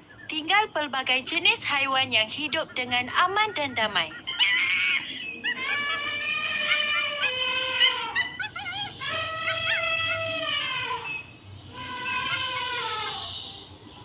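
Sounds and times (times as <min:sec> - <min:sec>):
wavering animal calls: 0:01.6 - 0:14.0
long held animal calls: 0:03.4 - 0:14.0.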